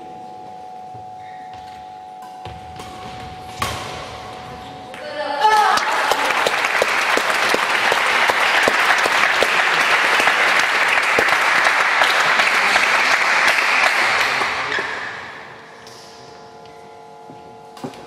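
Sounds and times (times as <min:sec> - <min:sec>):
audience applauding: 0:05.6 - 0:15.3.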